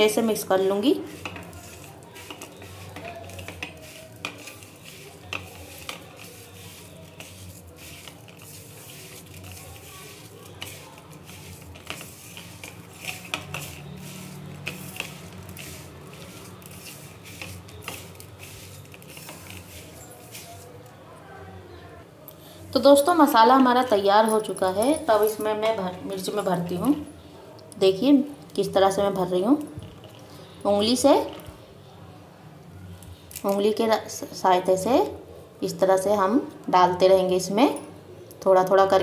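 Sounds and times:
gritty rustle of spice mixing: 0.2s - 21.0s
fingers scraping steel plate: 1.1s - 20.6s.

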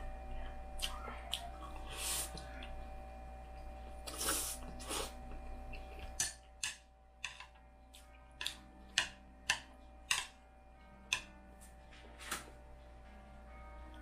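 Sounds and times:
faint hum: 0.0s - 14.0s
slurping noodles: 4.1s - 5.2s
utensils tapping a plate: 6.2s - 7.6s, 8.4s - 10.4s, 11.1s - 11.3s.

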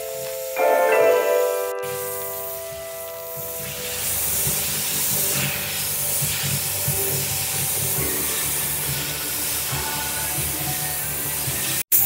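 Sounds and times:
airbrush hissing: 0.0s - 12.0s
background music with bass beat: 0.0s - 12.0s.

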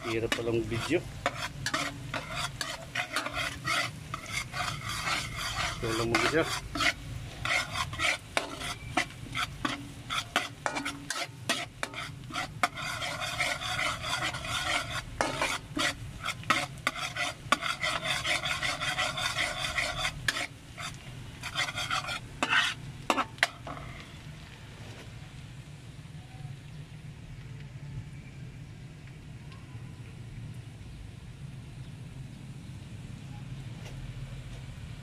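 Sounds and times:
metal ladle scraping a pan: 0.0s - 24.2s
garlic sizzling in hot oil: 0.0s - 24.5s.

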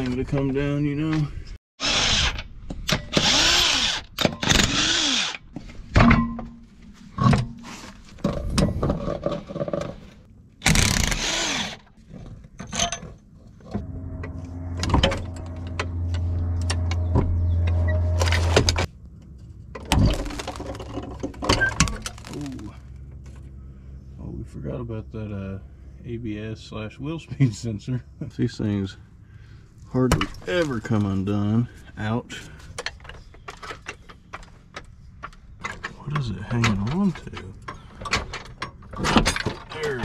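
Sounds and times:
cordless power tool whirring: 3.1s - 5.5s
low motor hum: 13.2s - 26.2s.

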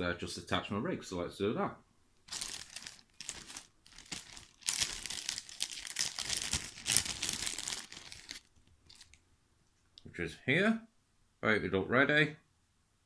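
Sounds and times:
packaging crinkling and rustling: 2.2s - 9.2s.

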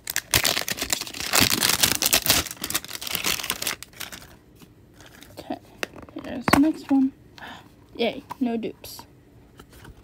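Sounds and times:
plastic wrapping crinkling: 0.0s - 4.4s.

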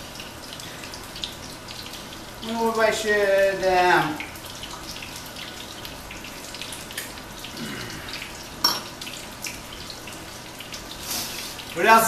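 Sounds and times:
fish sizzling in a pan: 0.0s - 12.0s
wine glass clinking on stone: 8.6s - 8.9s.

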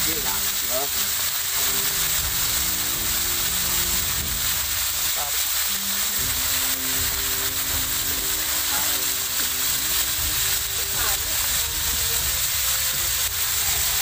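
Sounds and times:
crabs sizzling in a wok: 0.0s - 14.0s.

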